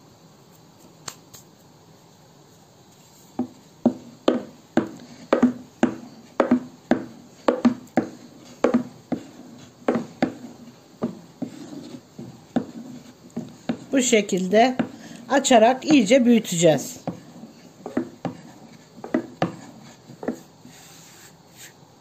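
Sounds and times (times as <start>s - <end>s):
rolling pin knocking on wooden board: 3.4s - 16.1s, 16.9s - 20.5s.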